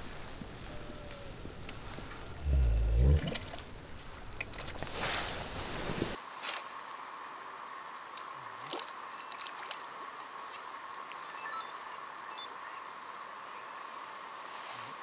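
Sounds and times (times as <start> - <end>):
faint hiss: 0.0 - 15.0
high chirps: 11.2 - 12.5.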